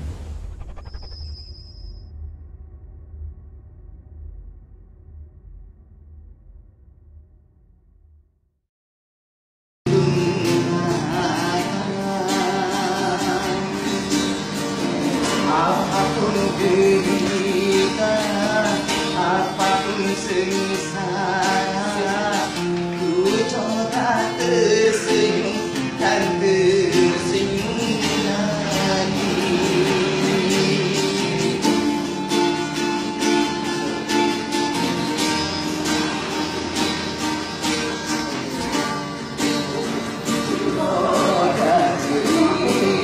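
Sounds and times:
man singing with vibrato: 9.9s - 32.4s, 40.3s - 43.0s
plucked string accompaniment: 9.9s - 43.0s.

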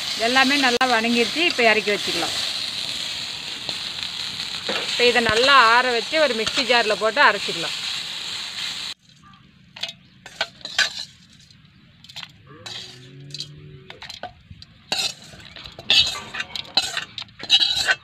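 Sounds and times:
frying sizzle: 0.0s - 9.0s, 14.9s - 18.0s
spatula clinking and scraping metal: 9.8s - 18.0s.

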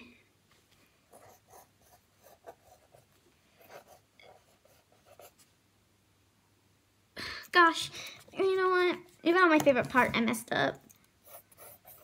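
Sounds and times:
pencil scratching on paper: 1.1s - 5.4s, 11.2s - 12.0s.

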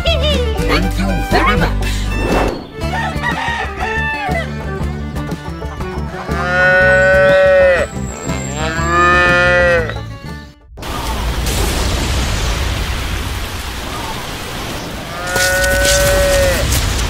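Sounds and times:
light background music: 0.0s - 10.5s
cow mooing: 6.3s - 10.0s, 15.1s - 16.6s.

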